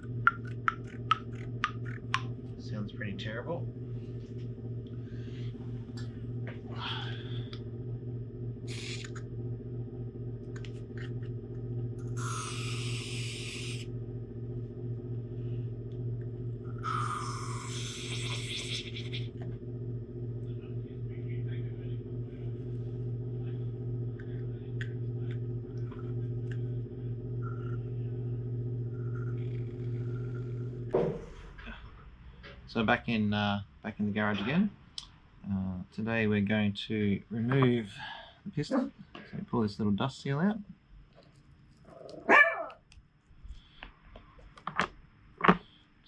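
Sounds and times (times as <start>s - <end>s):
steady low hum: 0.0s - 44.7s
aerosol spray can hissing: 8.7s - 9.2s, 12.1s - 13.8s, 17.0s - 19.2s.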